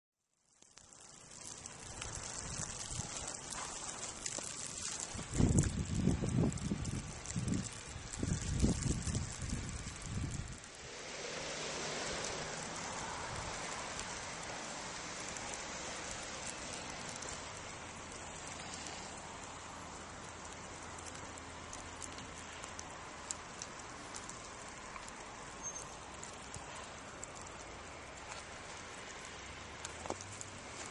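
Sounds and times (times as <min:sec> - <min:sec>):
snowstorm hiss: 0:01.0 - 0:30.9
faint ticks: 0:15.1 - 0:30.9.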